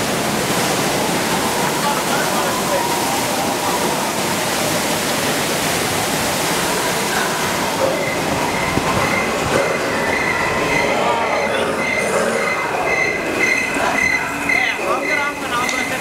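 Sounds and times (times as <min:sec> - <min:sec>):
water falling and splashing: 0:00.0 - 0:16.0.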